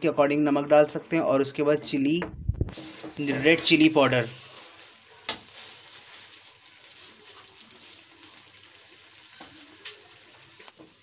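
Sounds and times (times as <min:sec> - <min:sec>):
vegetables sizzling in a pan: 0:02.7 - 0:11.0.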